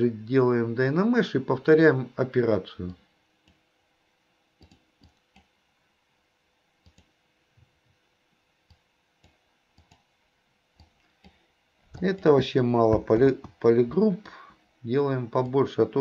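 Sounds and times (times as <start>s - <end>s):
faint computer mouse clicks: 4.6s - 5.5s, 6.8s - 7.1s, 8.7s - 10.1s.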